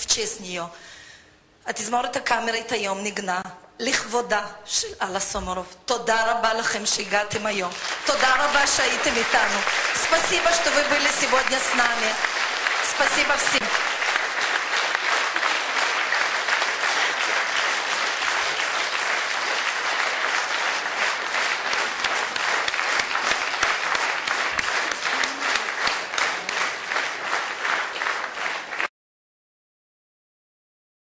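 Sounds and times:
audience applauding: 7.6 - 28.9.

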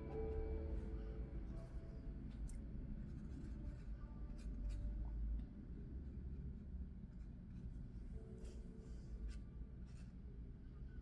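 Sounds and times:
low steady hum: 0.0 - 11.0
paintbrush scratching on paper: 3.0 - 4.9.

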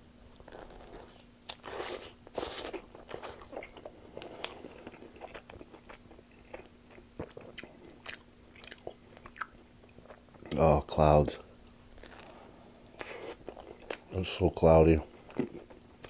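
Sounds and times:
faint steady hum: 0.0 - 16.0
biting into crunchy pizza: 0.3 - 9.5
chewing with crackly clicks: 2.8 - 10.6, 13.0 - 14.2, 15.1 - 16.0.

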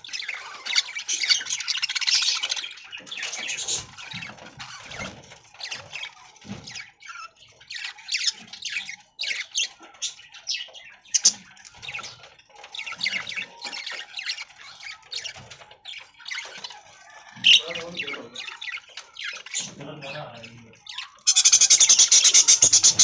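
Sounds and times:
budgerigars chirping and chattering: 0.0 - 23.0.

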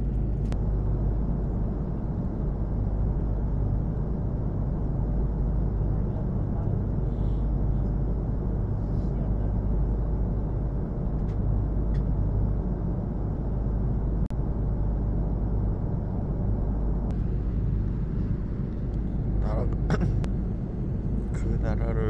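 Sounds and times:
jet airliner cabin rumble: 0.0 - 22.0.

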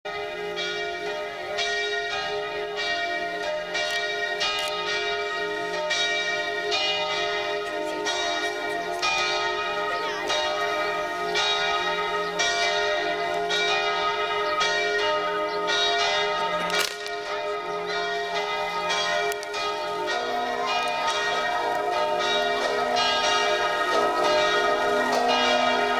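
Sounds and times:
bells pealing: 0.1 - 25.9
sharp crack: 16.6 - 17.3.

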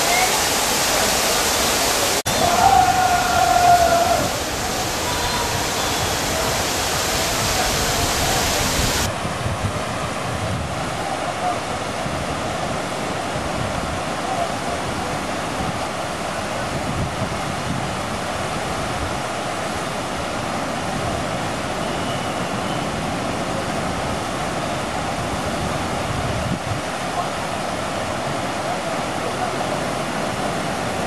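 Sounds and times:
running water rushing: 0.0 - 31.0.

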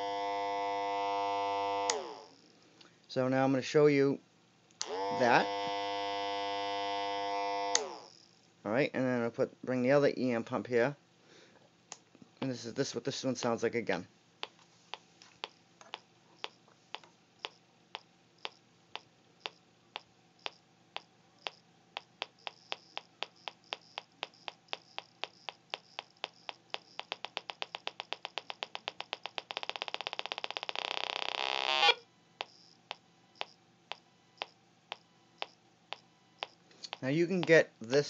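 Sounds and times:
faint steady hum: 0.0 - 38.0
sharp electromagnetic clicks: 0.7 - 2.4, 4.7 - 8.3, 14.4 - 38.0.

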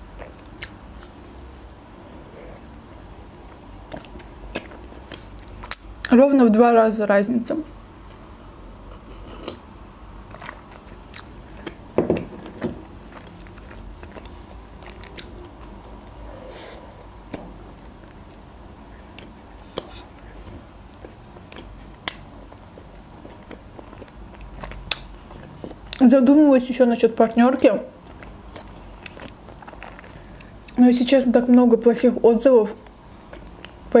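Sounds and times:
mouth clicks and smacks: 0.2 - 1.1, 3.0 - 6.2, 19.0 - 26.0
chewing and biting: 3.3 - 6.1, 10.2 - 16.4, 17.8 - 26.0, 28.0 - 30.8.

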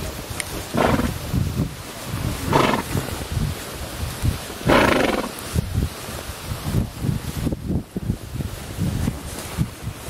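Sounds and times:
hooves thudding: 0.4 - 1.3, 2.3 - 3.7, 4.5 - 5.5
horse blowing through nostrils: 0.6 - 1.4, 2.2 - 3.3, 4.6 - 5.6.

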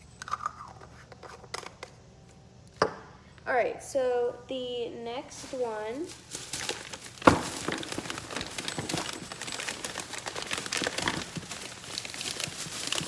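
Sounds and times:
plastic packaging crinkling: 5.4 - 13.0.

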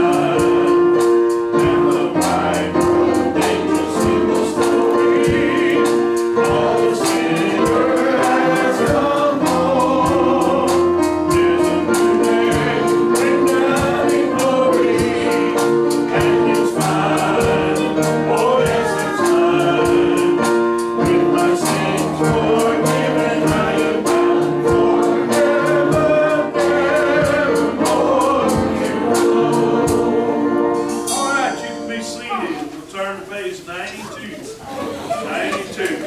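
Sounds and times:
group singing a gospel hymn: 0.0 - 32.3
instruments with a steady beat: 0.0 - 32.3.

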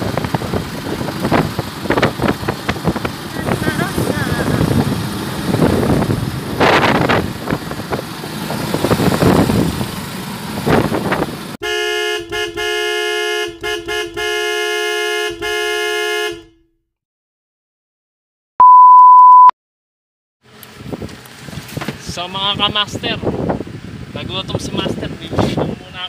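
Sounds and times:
road and wind noise: 0.0 - 16.4, 20.4 - 26.0
vehicle horn blasts: 11.6 - 16.8.

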